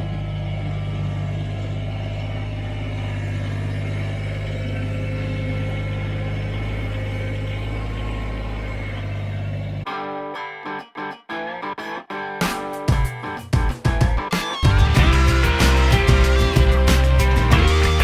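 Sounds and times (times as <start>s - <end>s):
heavy equipment engine running: 0.0s - 9.9s, 14.5s - 18.0s.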